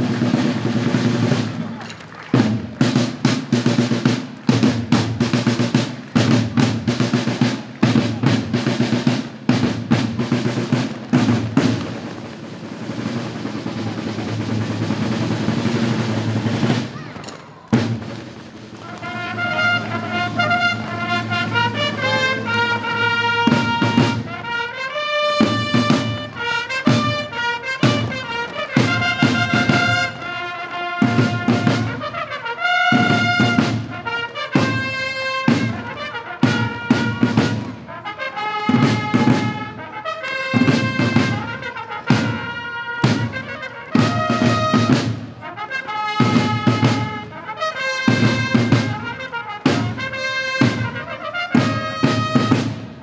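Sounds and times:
drum roll: 0.0s - 53.0s
brass melody: 17.7s - 53.0s.

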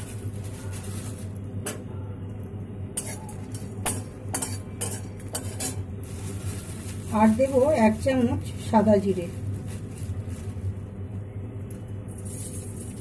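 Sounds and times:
steady low hum: 0.0s - 13.0s
spatula scraping a metal pan: 3.8s - 5.8s.

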